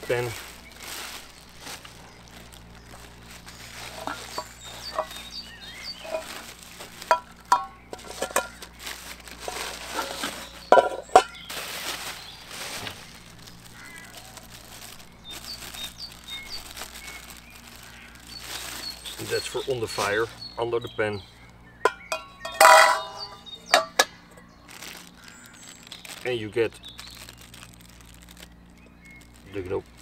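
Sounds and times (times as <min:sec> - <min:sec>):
plastic wrap rustling and crinkling: 0:00.0 - 0:30.0
small birds chirping: 0:00.0 - 0:30.0
metal parts clinking and knocking: 0:22.1 - 0:24.1.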